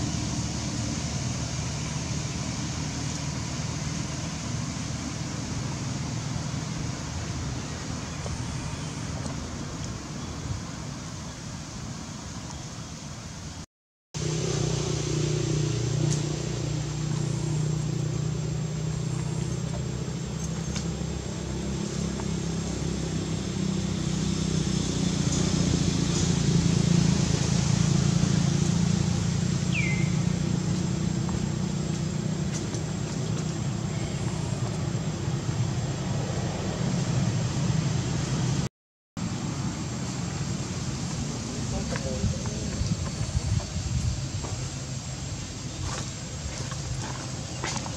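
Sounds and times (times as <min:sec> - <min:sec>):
idling motor hum: 0:00.0 - 0:10.7, 0:14.2 - 0:47.9
high falling chirp: 0:29.7 - 0:30.5.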